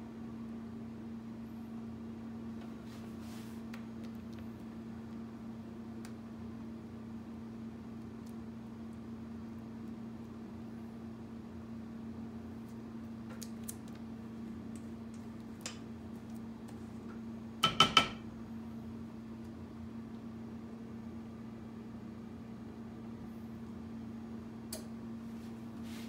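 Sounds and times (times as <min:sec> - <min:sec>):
steady low hum: 0:00.0 - 0:26.0
utensil knocking on metal bowl: 0:17.6 - 0:18.2.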